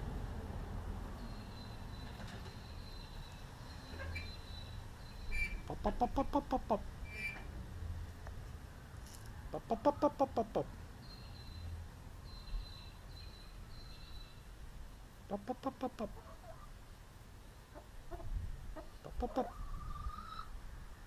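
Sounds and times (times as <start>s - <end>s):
faint high whistled bird calls: 1.2s - 5.7s, 7.1s - 7.4s, 11.0s - 14.4s
chicken clucking: 5.6s - 6.9s, 9.5s - 10.7s, 15.3s - 16.7s, 17.7s - 20.5s.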